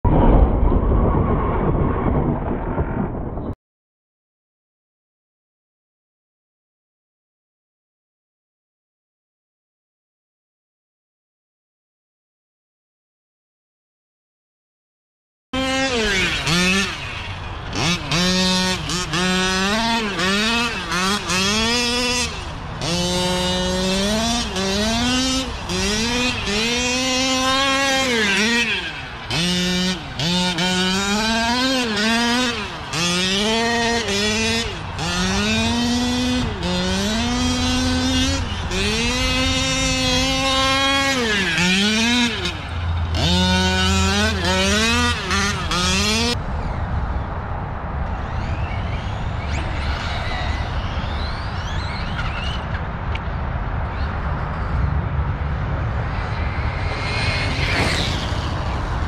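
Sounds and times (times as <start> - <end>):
toy truck motor revving: 15.6 - 46.4.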